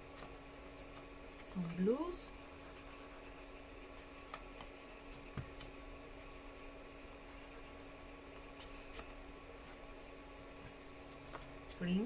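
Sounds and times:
steady low hum: 0:00.0 - 0:12.0
pastel scratching on paper: 0:02.3 - 0:03.5, 0:07.2 - 0:08.0.

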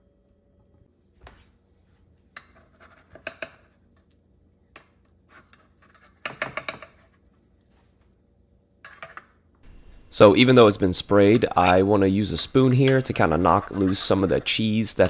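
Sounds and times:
metal spoon scraping metal tin: 0:11.2 - 0:15.0.

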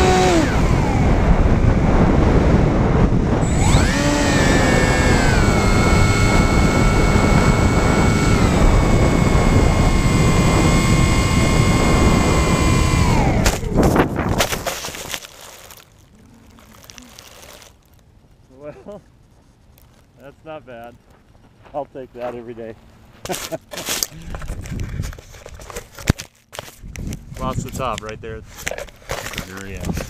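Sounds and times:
wind rush: 0:00.0 - 0:14.6
electric motor and propeller whining: 0:00.0 - 0:17.8
thumps and scrapes on grass: 0:13.4 - 0:18.0.

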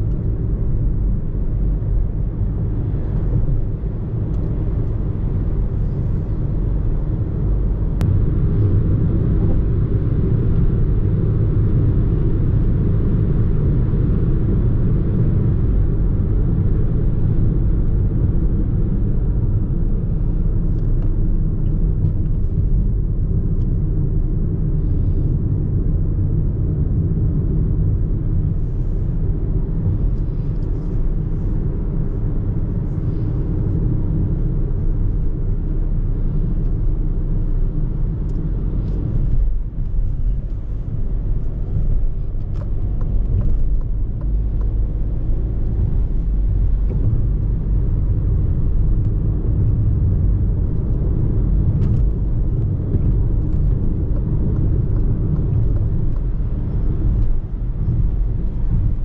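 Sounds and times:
car interior engine and tyre rumble: 0:00.0 - 0:59.0.

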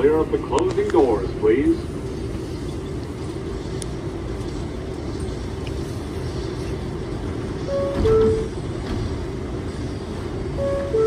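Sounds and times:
subway car hum: 0:00.0 - 0:11.0
two-tone door chime: 0:07.7 - 0:08.5.

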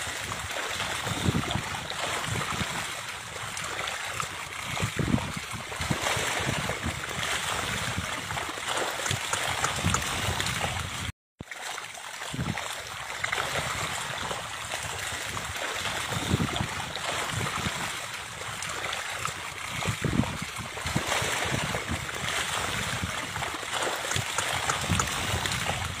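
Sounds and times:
fish flapping and splashing: 0:05.8 - 0:11.1, 0:20.9 - 0:26.0.

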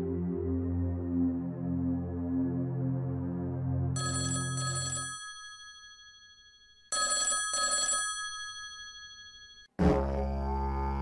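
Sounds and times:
soft ambient music: 0:00.0 - 0:04.0
telephone ringing: 0:04.0 - 0:09.7.

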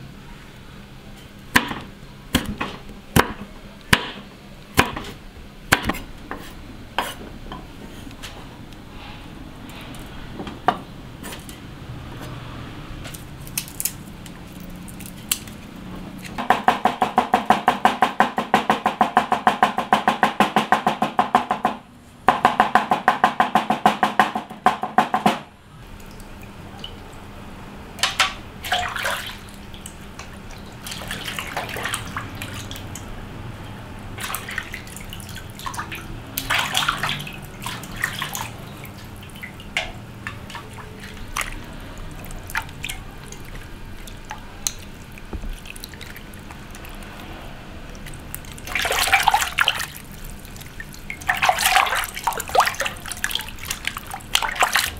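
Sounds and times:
water splashing: 0:25.8 - 0:27.4, 0:28.0 - 0:54.9.

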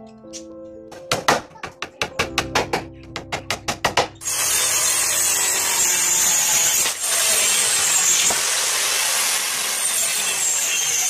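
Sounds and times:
circular saw cutting wood: 0:04.2 - 0:11.0.

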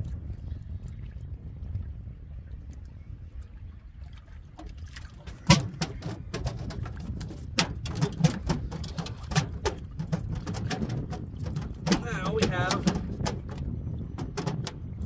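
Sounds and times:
wind rumbling on microphone: 0:00.0 - 0:15.0
fish knocking and slapping on boat: 0:04.5 - 0:15.0.

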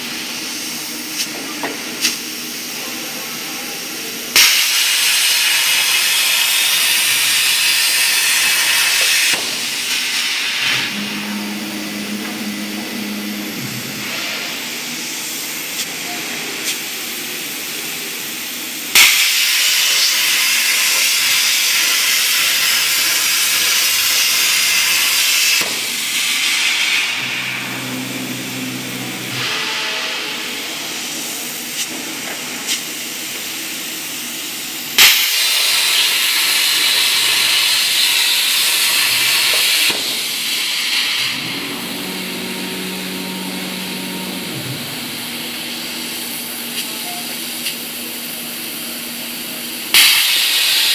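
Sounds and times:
plasma torch hissing: 0:04.4 - 0:17.8, 0:18.9 - 0:34.3, 0:34.9 - 0:48.2, 0:49.2 - 0:50.9
low hum: 0:10.6 - 0:15.2, 0:26.9 - 0:31.4, 0:41.2 - 0:46.3.

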